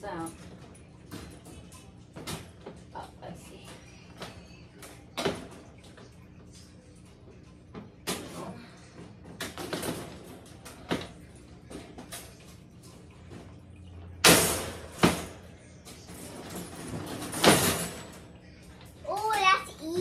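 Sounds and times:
metal wire panels rattling: 14.2 - 19.6.

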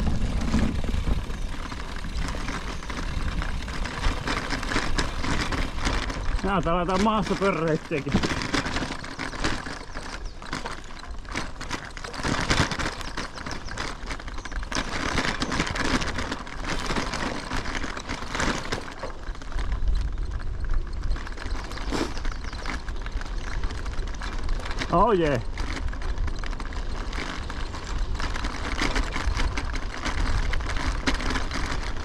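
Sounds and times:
low rumble: 0.0 - 6.7
bicycle and luggage rattling: 0.0 - 32.0
tyres crunching over gravel: 0.0 - 32.0.

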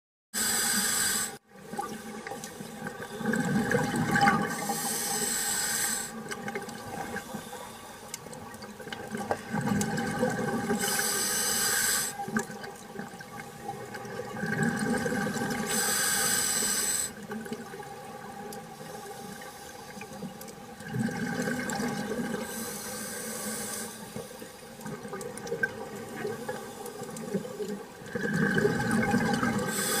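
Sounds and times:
regulator hissing inhale: 0.4 - 1.4, 4.5 - 6.2, 7.1 - 8.1, 10.8 - 12.2, 15.6 - 17.2, 18.8 - 20.1, 22.4 - 24.7, 29.7 - 30.0
exhaled bubbles rushing: 1.6 - 4.6, 8.5 - 10.8, 12.2 - 15.7, 20.8 - 22.5, 27.6 - 29.7.

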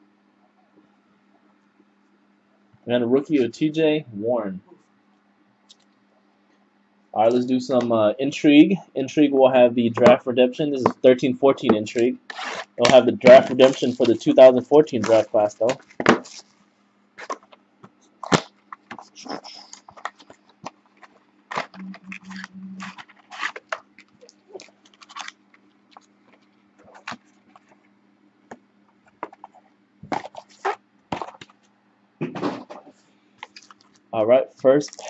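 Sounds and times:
cardboard and plastic packaging crackling: 12.3 - 16.6, 17.2 - 17.6, 18.2 - 21.8, 22.9 - 27.8, 29.0 - 31.7, 33.4 - 34.1, 34.7 - 35.0
low buzz pulses: 21.8 - 23.0.

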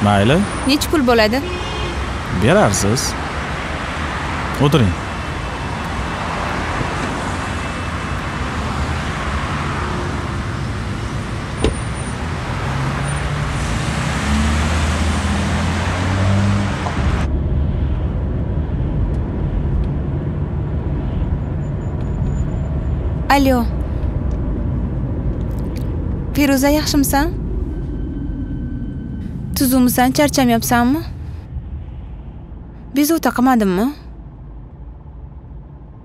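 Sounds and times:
cars passing on busy street: 0.0 - 28.0, 28.9 - 36.0.

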